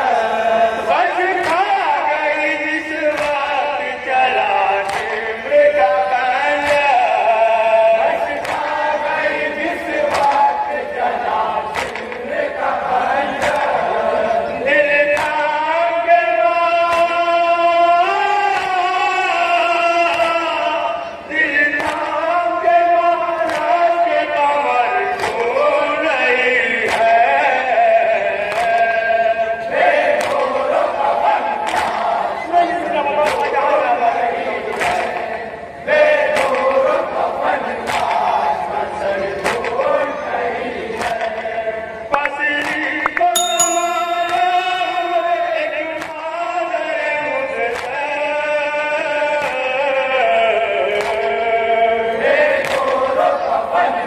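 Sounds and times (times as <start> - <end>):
men chanting a lament: 0.0 - 54.0
chest-beating strikes: 43.4 - 46.1.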